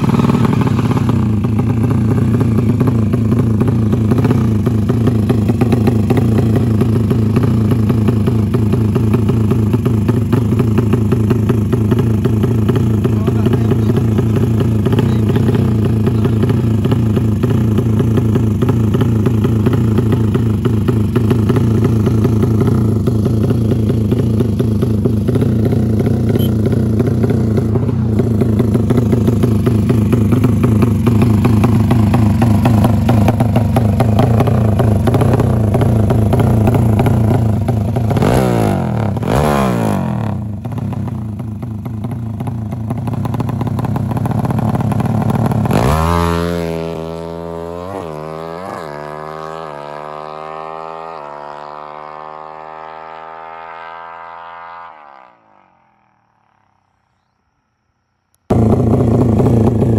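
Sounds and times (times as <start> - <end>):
motorcycle engine revving: 0.0 - 56.7, 58.5 - 59.9.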